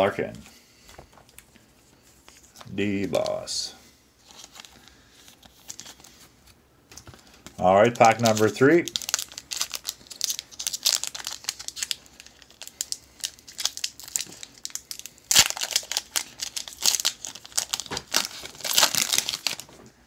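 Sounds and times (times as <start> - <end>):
foil wrapper crinkling and tearing: 4.2 - 6.2, 7.2 - 19.8.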